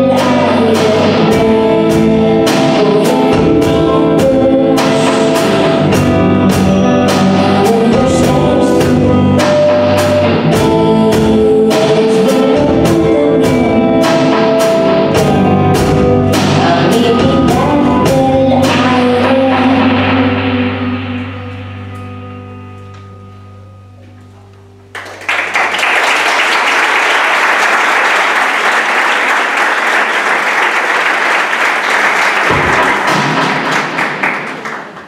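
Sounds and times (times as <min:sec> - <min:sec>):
woman singing: 0:00.0 - 0:05.6, 0:06.5 - 0:14.3, 0:15.1 - 0:20.5
live rock band playing: 0:00.0 - 0:25.4, 0:32.1 - 0:35.0.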